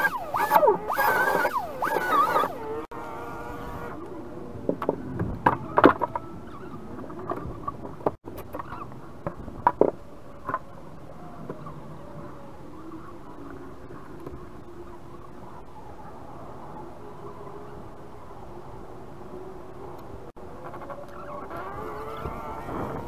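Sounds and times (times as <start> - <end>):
siren wailing: 0.0 - 2.9.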